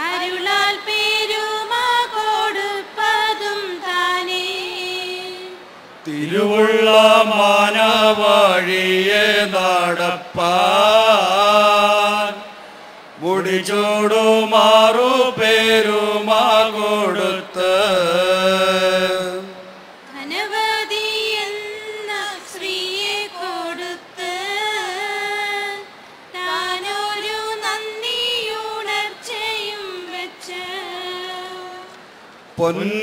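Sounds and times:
higher voices singing: 0.0s - 32.0s
low men's voices chanting: 6.0s - 19.8s.

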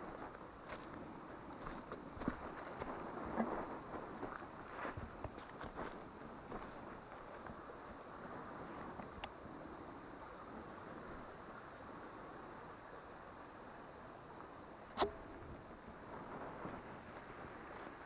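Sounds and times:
insects buzzing: 0.0s - 18.0s
sharp click: 15.0s - 15.2s.

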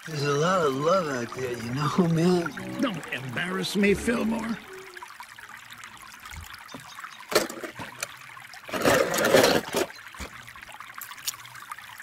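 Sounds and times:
water trickling: 0.0s - 12.0s
toy cars splashing into water: 7.2s - 11.5s.

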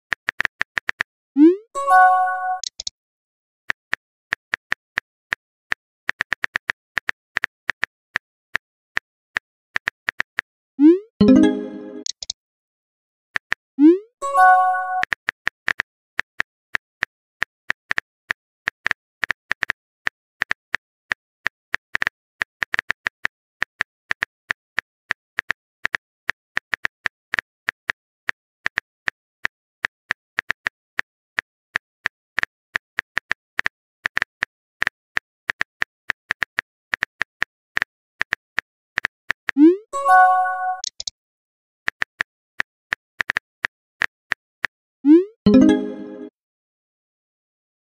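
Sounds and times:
multi-note message chime: 1.8s - 2.6s, 11.2s - 12.1s, 14.2s - 15.0s, 40.0s - 40.9s, 45.5s - 46.3s.

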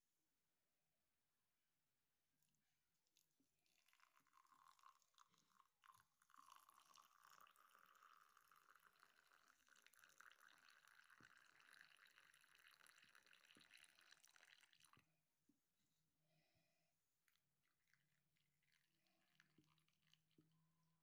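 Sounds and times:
water poured into glass mug: 3.6s - 15.1s, 17.2s - 20.5s.

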